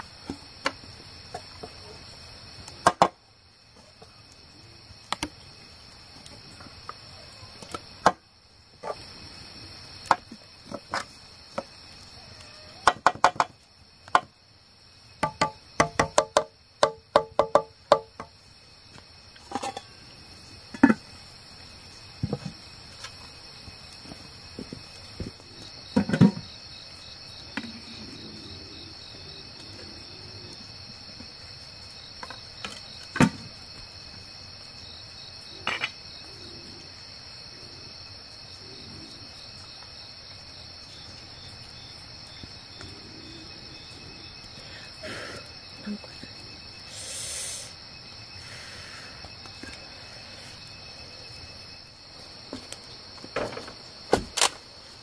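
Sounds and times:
insects chirping: 0.0 - 55.0
sharp knocks and clatters: 12.8 - 14.3, 15.2 - 18.4, 25.9 - 26.5, 52.5 - 54.6.

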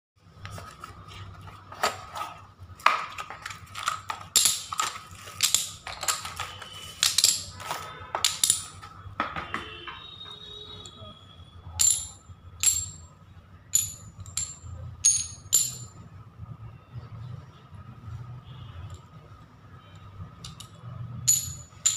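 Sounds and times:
ceramic tiles clicking and clattering: 1.7 - 9.5, 11.7 - 16.0, 20.3 - 21.9.

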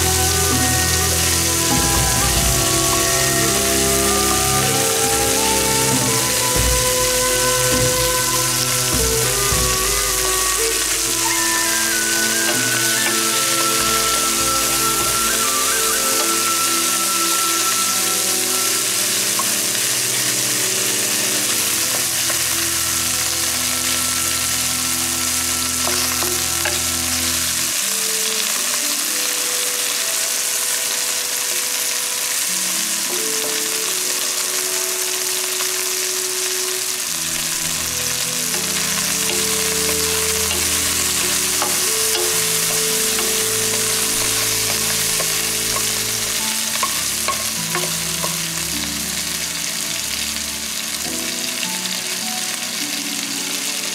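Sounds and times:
chicken sizzling in oil: 0.0 - 53.9
wooden spatula stirring in wok: 0.1 - 17.6, 25.0 - 27.7, 37.1 - 49.2.

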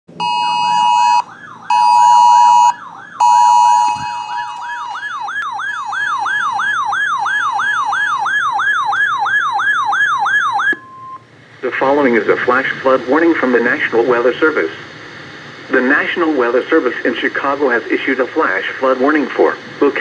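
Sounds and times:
warbling siren alarm: 0.1 - 11.2
loud electronic beeps: 0.2 - 11.2.

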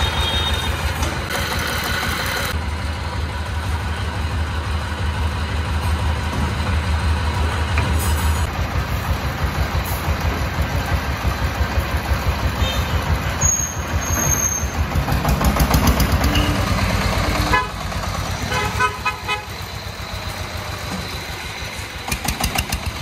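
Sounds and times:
vehicle horn toots: 0.0 - 0.9, 12.6 - 13.7, 17.4 - 17.8, 18.5 - 19.6
diesel engine chugging: 0.0 - 23.0.

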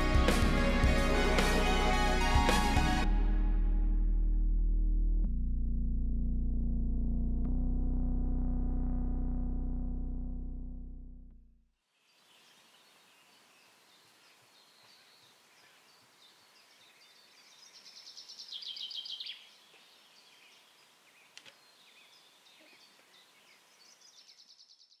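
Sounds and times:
faint outdoor hiss: 11.8 - 25.0
small birds singing: 12.0 - 25.0.

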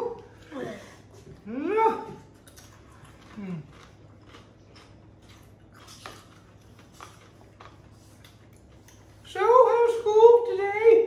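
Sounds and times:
chewing crunchy chips: 2.2 - 9.4.

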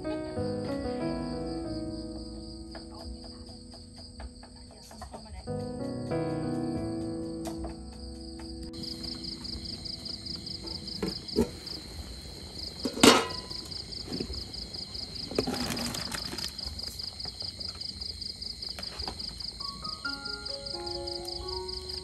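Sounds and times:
crickets chirping: 0.0 - 22.0
metal pot lid clank: 12.8 - 13.6.

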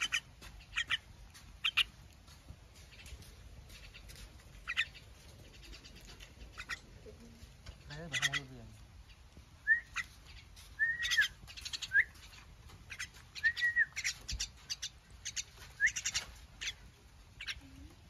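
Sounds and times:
young myna begging calls: 7.9 - 8.6.

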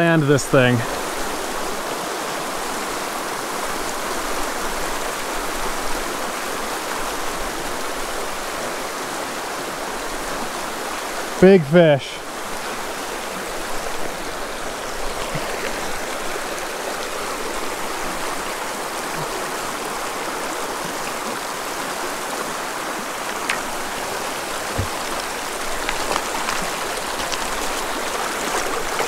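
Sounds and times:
creek rushing over rocks: 0.0 - 29.0
faint knocks: 24.7 - 25.2.

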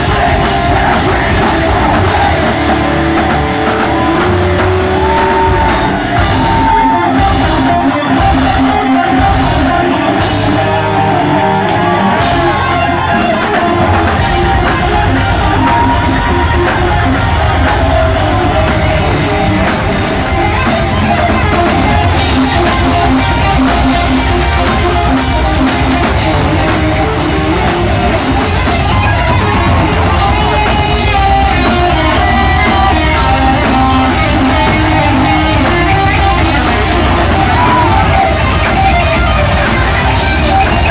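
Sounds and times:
bass guitar: 0.0 - 40.9
distorted electric guitars: 0.0 - 40.9
drum kit: 0.0 - 40.9
guitar melody: 0.0 - 40.9.

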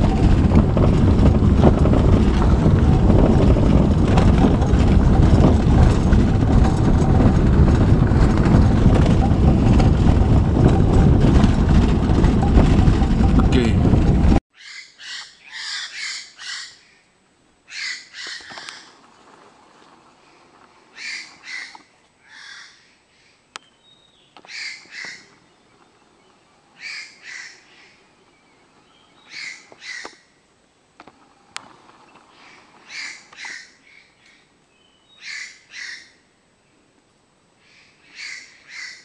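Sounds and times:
jay rasping calls: 14.6 - 17.0, 17.7 - 19.0, 20.9 - 22.9, 35.2 - 36.2, 37.6 - 39.0.

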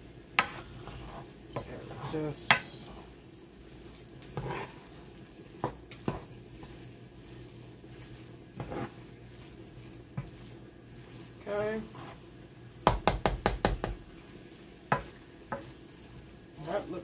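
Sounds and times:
faint sizzle: 0.0 - 17.0
utensil scraping and knocking pan: 0.4 - 3.1, 4.2 - 4.9, 5.6 - 6.8, 7.8 - 9.1, 9.8 - 11.2, 12.8 - 14.1, 14.9 - 15.8.

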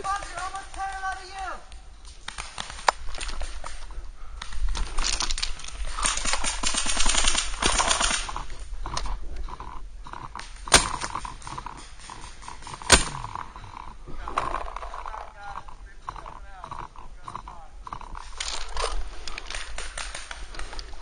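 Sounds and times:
paintball markers firing: 0.0 - 3.8, 4.4 - 9.1, 10.3 - 21.0.

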